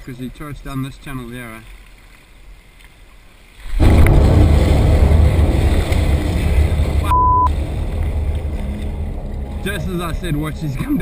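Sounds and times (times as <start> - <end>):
heavy splashing and churning water: 3.4 - 11.0
censor bleep: 7.0 - 7.5.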